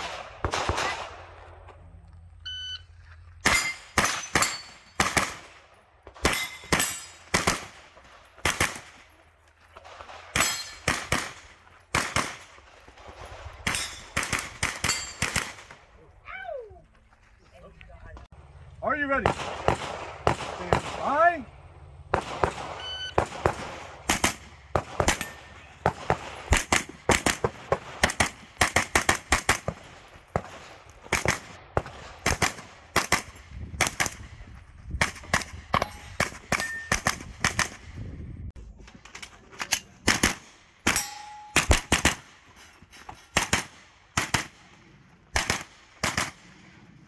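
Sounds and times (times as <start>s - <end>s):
gunshots in rapid pairs: 0.0s - 1.4s, 3.4s - 9.1s, 9.8s - 15.8s, 19.2s - 21.4s, 22.1s - 34.3s, 35.0s - 38.0s, 40.0s - 42.4s, 43.3s - 47.0s
steel target ringing: 3.5s - 5.0s, 40.9s - 41.9s.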